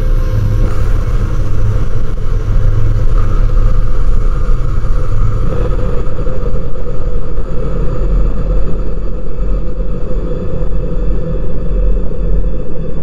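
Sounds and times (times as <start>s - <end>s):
dark heavy bass drone: 0.0s - 13.0s.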